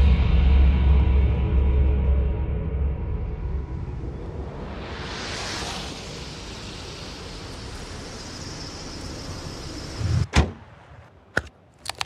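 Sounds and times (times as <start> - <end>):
car hood slamming shut: 10.3 - 10.6.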